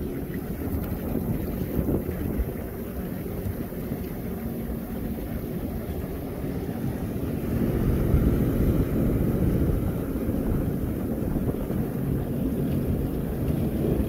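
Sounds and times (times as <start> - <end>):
water rushing: 0.0 - 14.0
watercraft engine running: 0.0 - 14.0
wind buffeting microphone: 0.0 - 14.0.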